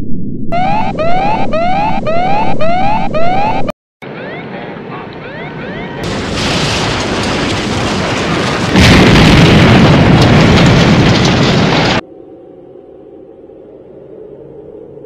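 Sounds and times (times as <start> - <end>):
explosion roar and blast: 6.0 - 12.0.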